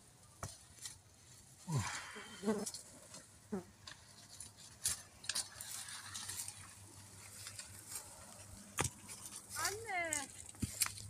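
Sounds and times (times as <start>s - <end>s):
dry leaves crackling underfoot: 4.2s - 11.0s.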